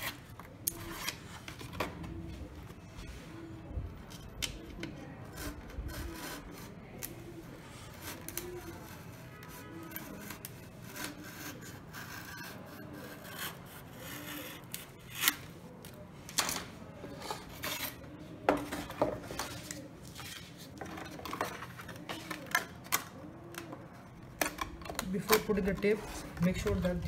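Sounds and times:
knife scraping through foam board: 10.0s - 15.4s.

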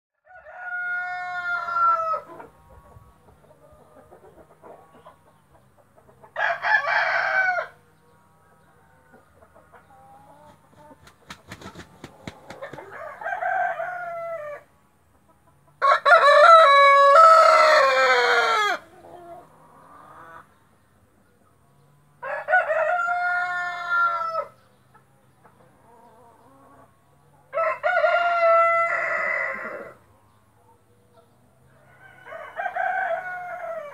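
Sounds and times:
rooster crowing: 0.2s - 2.3s, 6.4s - 7.8s, 12.8s - 14.7s, 15.8s - 18.9s, 22.2s - 24.6s, 27.5s - 30.0s, 31.8s - 33.9s
wings flapping: 10.7s - 12.9s.

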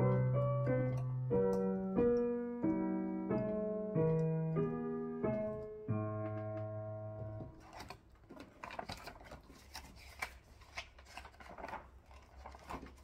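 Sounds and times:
piano chord: 0.0s - 7.6s
paper rustling: 7.4s - 13.0s.

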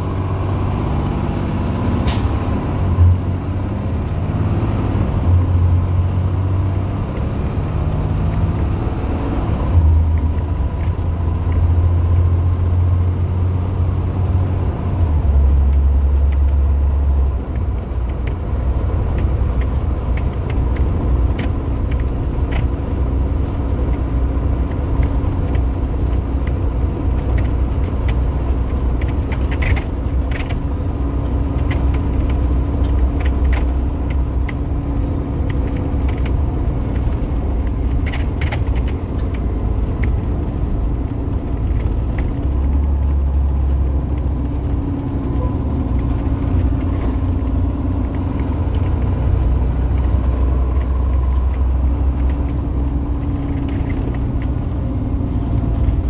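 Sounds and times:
bus diesel engine drone: 0.0s - 56.0s
cab clicks and rattles: 15.4s - 56.0s.

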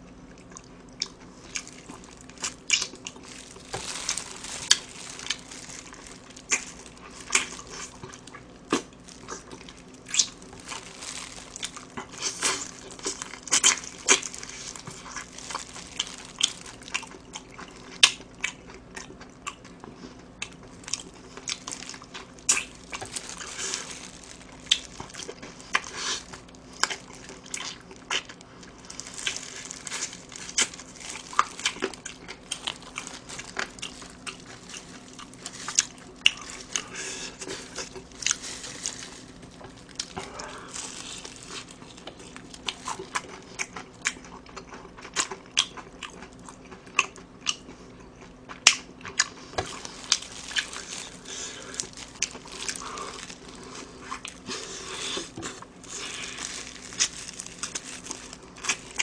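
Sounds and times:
crunching fried chicken: 0.0s - 59.0s.

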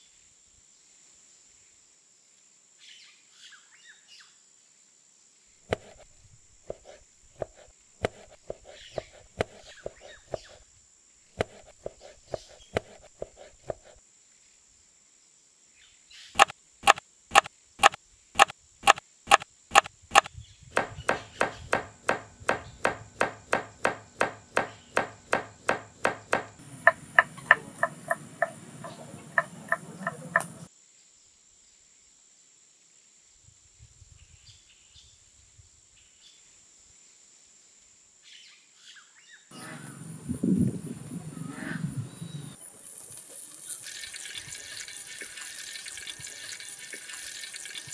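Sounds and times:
knife chopping vegetables on board: 5.7s - 6.0s, 6.7s - 10.6s, 11.4s - 14.0s, 16.4s - 28.5s.

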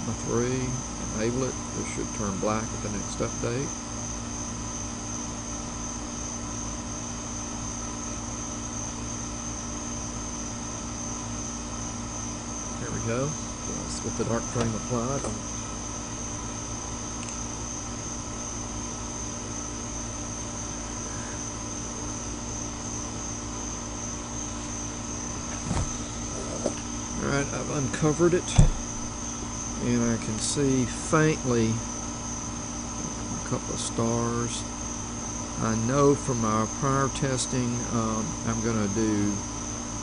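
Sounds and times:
low steady hum: 0.0s - 39.5s
night insects trilling: 0.0s - 40.0s
high-pitched whine: 12.2s - 32.0s
low hum: 20.5s - 31.8s
brief knock: 28.5s - 28.9s.

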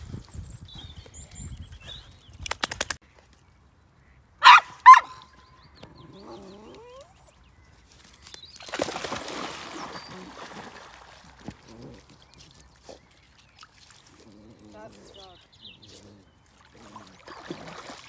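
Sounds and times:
dog barking: 4.4s - 5.2s.

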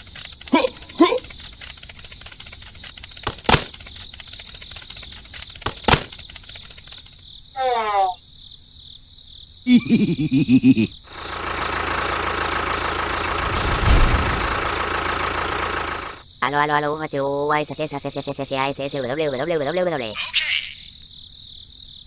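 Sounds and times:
sharp clicks: 0.0s - 7.2s
small motor whirring: 0.0s - 7.2s.

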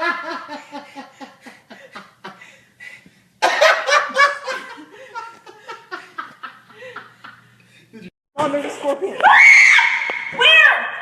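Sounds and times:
hearty laughter: 0.0s - 3.0s, 3.6s - 7.8s.

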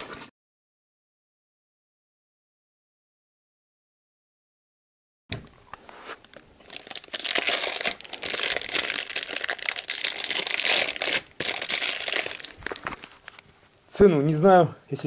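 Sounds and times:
plastic packaging crinkling and tearing: 6.3s - 13.4s.

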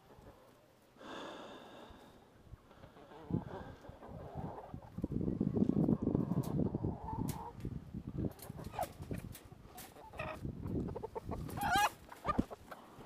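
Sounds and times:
chicken squawking and clucking: 2.8s - 7.6s, 8.2s - 12.8s.

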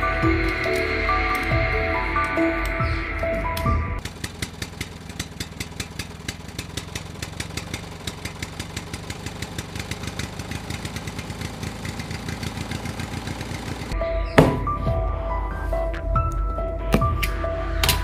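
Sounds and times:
tractor engine chugging: 0.0s - 15.2s.

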